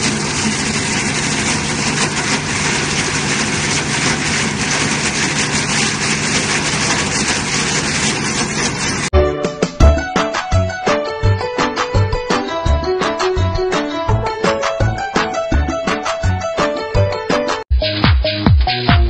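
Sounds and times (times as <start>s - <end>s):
corn husking machine clattering: 0.0s - 9.1s
music: 9.1s - 19.0s.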